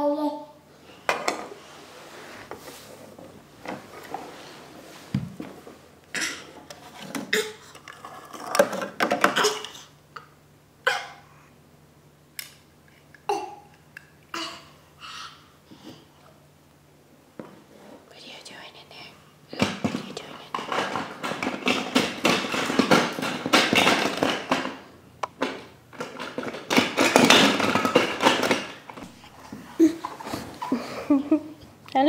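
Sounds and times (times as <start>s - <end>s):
baby vocal sounds: 13.3s - 15.6s, 29.6s - 31.0s.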